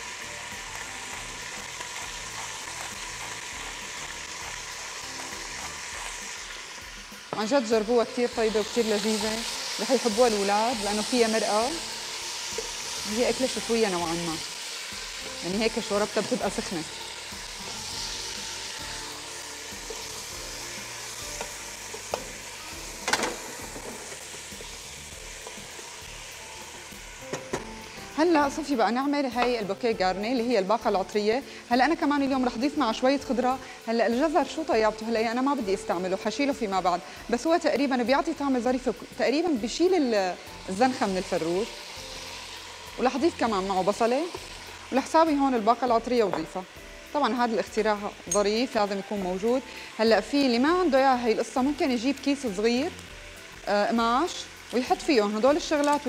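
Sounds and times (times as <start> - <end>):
chicken frying in oil: 0.0 - 7.1.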